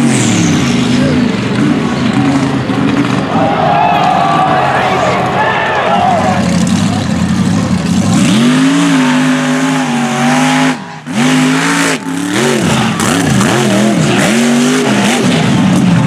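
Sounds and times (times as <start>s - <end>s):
truck engine revving: 0.0s - 16.0s.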